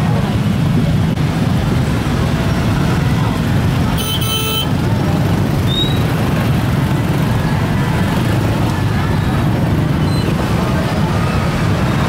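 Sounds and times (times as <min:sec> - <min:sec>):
road traffic rumble: 0:00.0 - 0:12.0
vehicle horn toot: 0:04.0 - 0:04.7.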